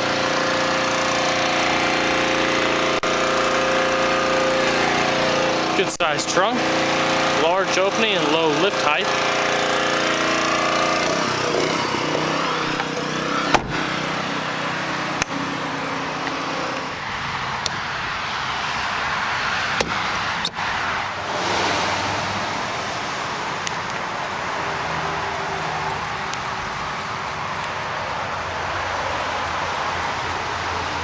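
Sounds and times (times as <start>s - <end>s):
pressure washer running: 0.0s - 31.0s
thump: 13.5s - 13.8s.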